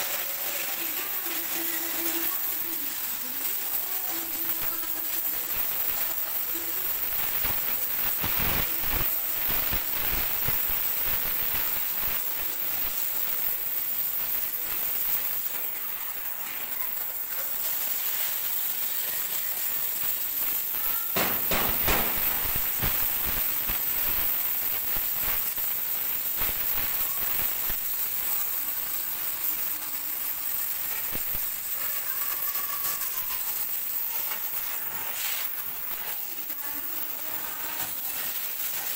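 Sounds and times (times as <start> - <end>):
cutting torch gas hiss: 0.0 - 38.9
sparks crackling and spitting: 0.0 - 38.9.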